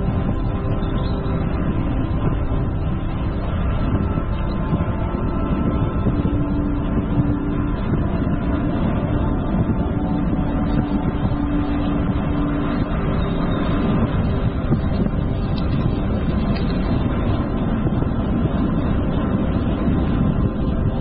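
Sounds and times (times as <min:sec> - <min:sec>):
faint hum: 0:00.0 - 0:21.0
wind and road noise: 0:00.0 - 0:21.0.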